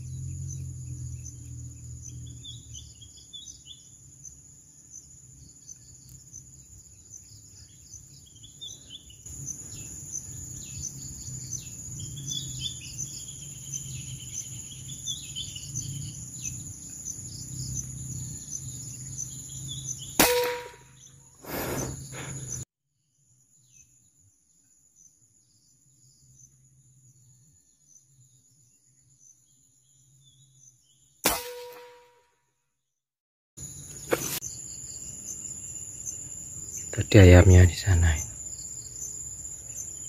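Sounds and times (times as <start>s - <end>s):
birds chirping: 0.0s - 22.6s, 33.9s - 40.0s
insects trilling: 0.0s - 22.6s, 33.6s - 40.0s
air rifle shot: 20.2s - 20.9s, 31.2s - 32.1s
brief rush of noise: 21.4s - 22.4s.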